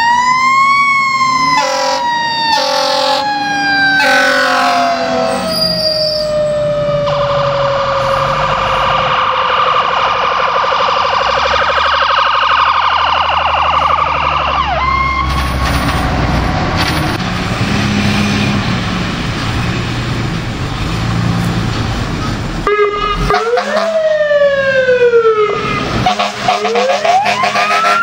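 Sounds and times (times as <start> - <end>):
electronic siren: 0.0 - 15.5, 22.6 - 28.0
mechanical siren winding down: 0.0 - 15.5
heavy engine rumble: 12.6 - 28.0.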